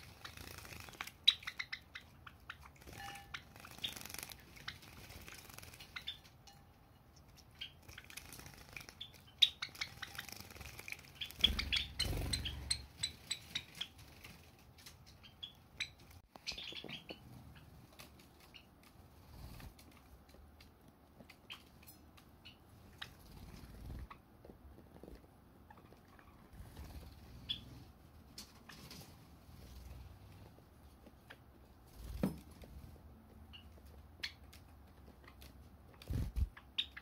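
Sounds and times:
wings fluttering in water: 0.0 - 1.3, 2.8 - 6.2, 7.8 - 12.8, 36.0 - 36.5
birds chirping: 0.0 - 24.4, 25.6 - 27.9.

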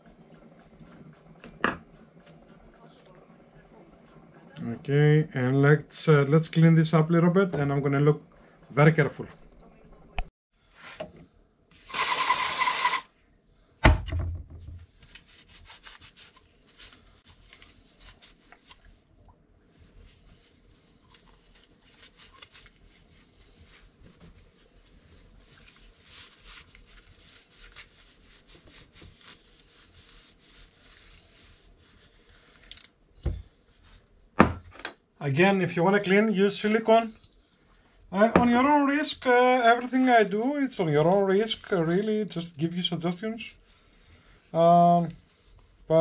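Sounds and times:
aerosol spray can hissing: 11.8 - 13.1
thump: 13.8 - 14.8, 34.4 - 34.6
cloth rubbing on tube: 14.9 - 19.1, 19.7 - 32.7, 38.9 - 46.0.

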